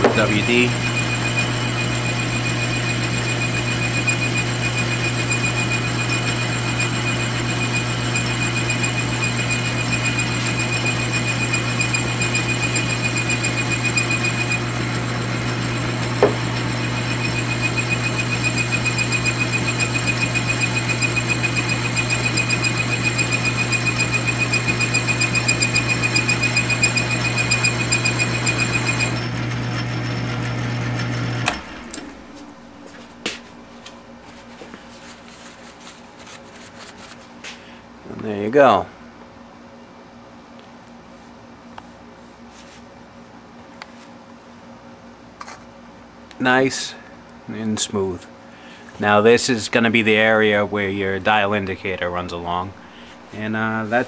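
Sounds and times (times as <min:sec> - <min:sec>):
high whine of metal cutting: 0:00.0 - 0:33.7
lathe motor humming: 0:00.0 - 0:35.4.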